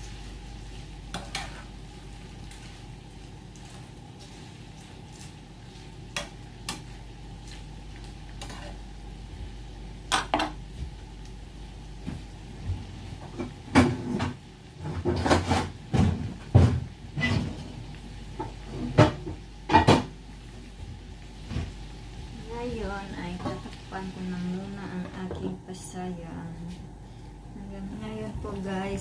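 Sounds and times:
pots and dishes clinking: 13.2 - 17.8, 18.4 - 20.1.

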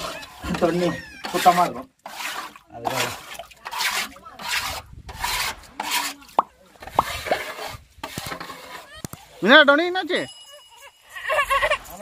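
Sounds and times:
scrubbing strokes on tank wall: 0.0 - 9.0.

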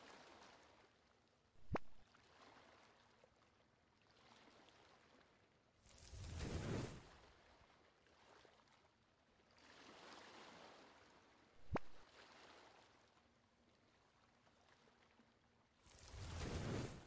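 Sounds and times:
soft whoosh effect: 16.0 - 17.0.

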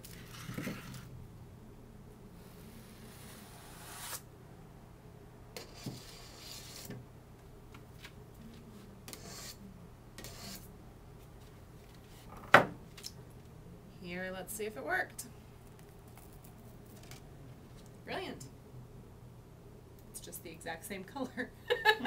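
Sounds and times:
scraper rasping on icing: 5.6 - 6.9, 9.1 - 9.6, 10.2 - 10.7.

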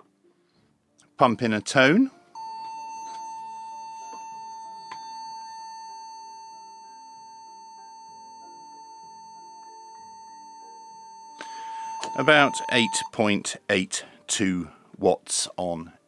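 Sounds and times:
whistle-like test tone: 2.4 - 13.1.

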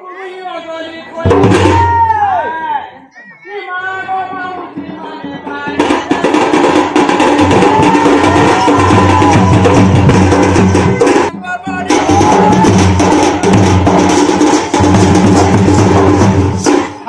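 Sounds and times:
stick-played drum: 1.2 - 2.2, 4.3 - 17.0
person singing: 3.2 - 10.0, 10.8 - 13.6.

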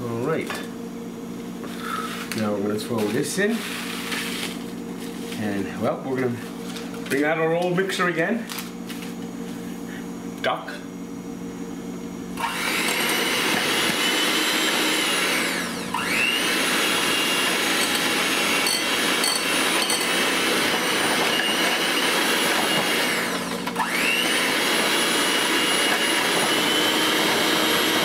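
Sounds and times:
electric hand mixer whining: 3.4 - 4.6, 12.4 - 28.0.

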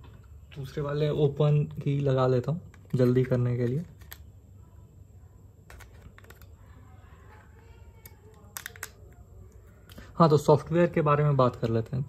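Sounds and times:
plastic clicks and taps: 8.0 - 9.2.

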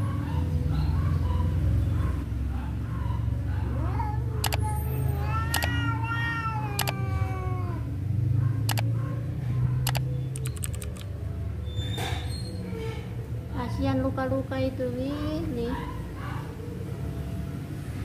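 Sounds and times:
cat yowling: 3.7 - 8.1
sharp clicks: 4.4 - 4.6, 5.5 - 5.7, 8.7 - 8.9, 9.9 - 11.1
cat growling low: 5.0 - 8.1.

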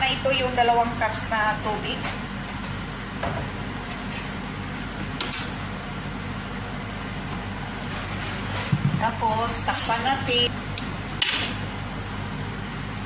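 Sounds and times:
appliance hum with hiss: 0.0 - 13.0.

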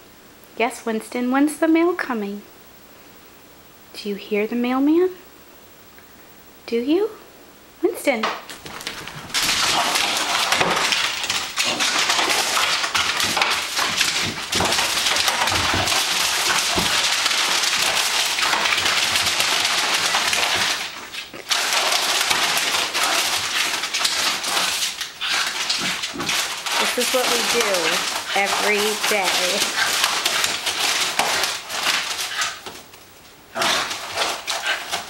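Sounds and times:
paper and plastic crinkling: 8.5 - 35.0.

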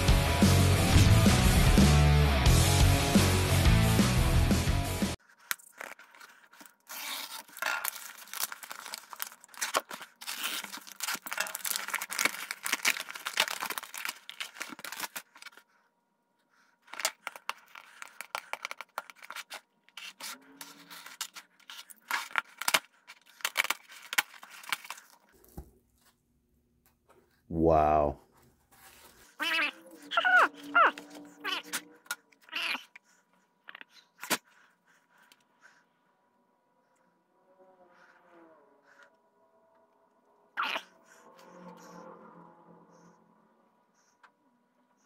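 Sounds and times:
packing tape tearing: 5.2 - 15.7, 16.8 - 25.2
bubble wrap crinkling: 5.2 - 15.8, 16.8 - 26.2.

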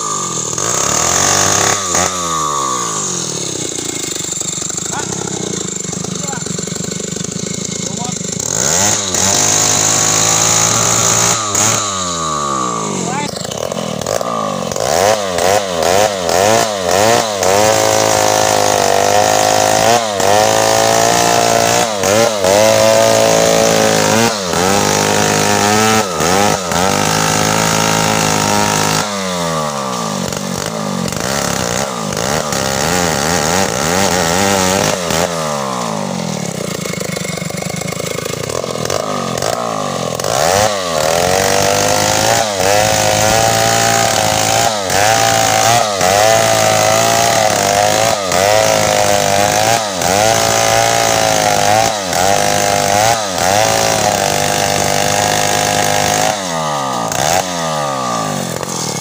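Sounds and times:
chainsaw cutting wood: 0.0 - 59.0.

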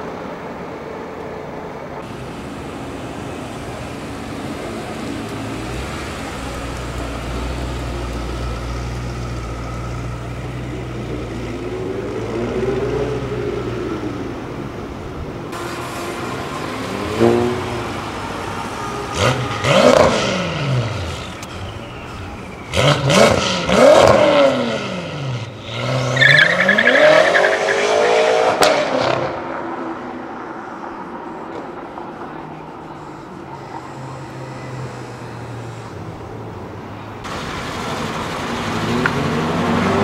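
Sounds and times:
car engines revving: 0.0 - 40.0
high whine: 15.3 - 22.8.

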